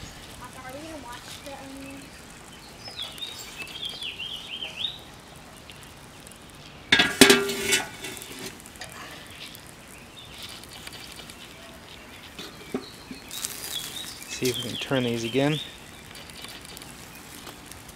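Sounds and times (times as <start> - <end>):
bird chirping: 0.0 - 5.9, 9.0 - 17.8
onions sizzling: 0.0 - 17.9
metal utensil clanking on grill: 6.9 - 9.0.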